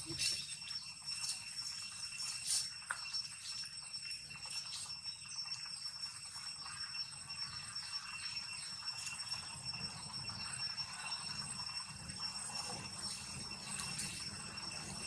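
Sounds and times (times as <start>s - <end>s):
faint rustles and ticks: 0.0s - 7.0s, 12.6s - 15.0s
high-pitched insect drone: 0.0s - 15.0s.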